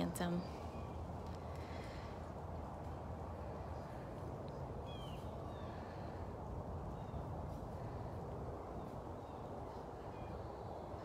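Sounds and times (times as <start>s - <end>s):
low background noise: 0.0s - 11.0s
faint bird chirps: 3.7s - 6.2s.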